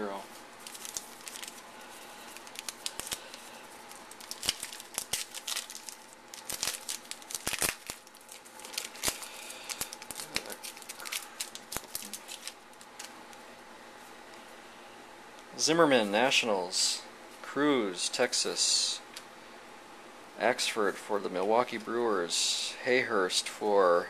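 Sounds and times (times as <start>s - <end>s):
wrapper being torn and crinkled: 0.6s - 13.1s.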